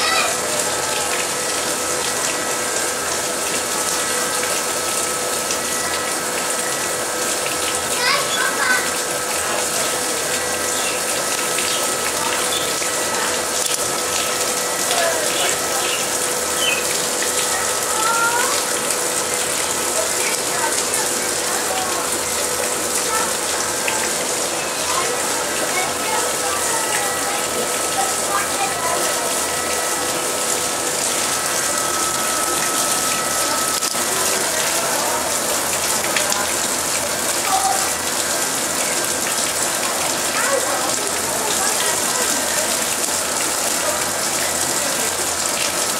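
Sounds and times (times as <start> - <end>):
water pouring into a pond: 0.0 - 45.9
faint steady whine: 27.0 - 37.0.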